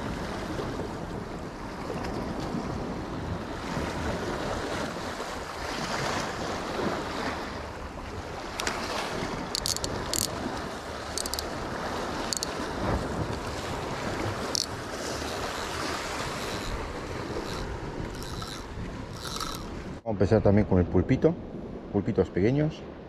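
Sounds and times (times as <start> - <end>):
sea waves washing against rocks: 0.0 - 20.0
wind buffeting microphone: 0.0 - 22.0
short sharp high clicks: 17.4 - 19.8.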